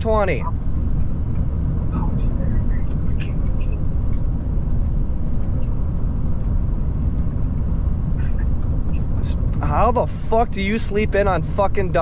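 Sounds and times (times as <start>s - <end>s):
road and engine rumble: 0.0s - 12.0s.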